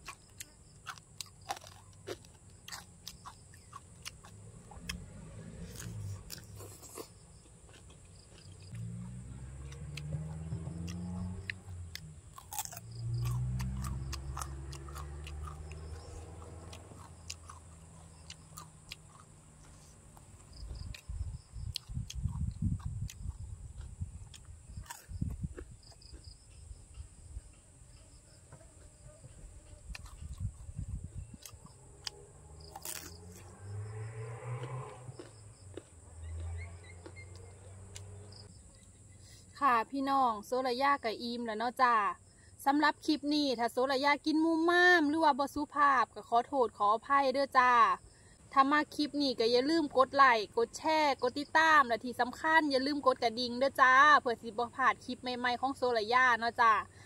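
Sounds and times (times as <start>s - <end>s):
person chewing and crunching food: 0.0s - 27.0s, 28.7s - 33.5s, 34.6s - 38.2s.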